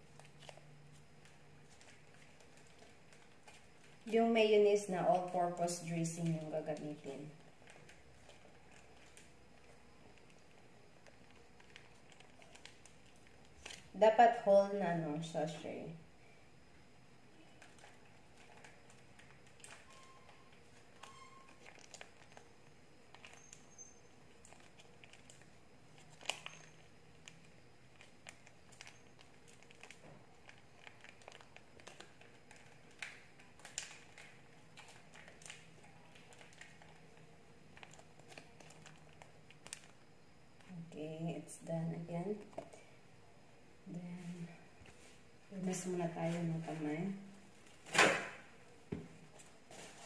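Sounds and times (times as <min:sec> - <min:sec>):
plastic sachet crinkling and clicking: 0:00.0 - 0:04.2, 0:05.0 - 0:14.0, 0:17.5 - 0:40.7.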